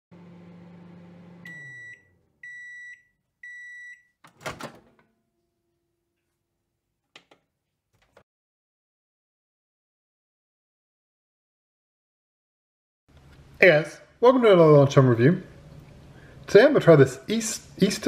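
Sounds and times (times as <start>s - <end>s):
microwave oven humming: 0.1s - 5.6s
microwave long beeps: 0.4s - 4.2s.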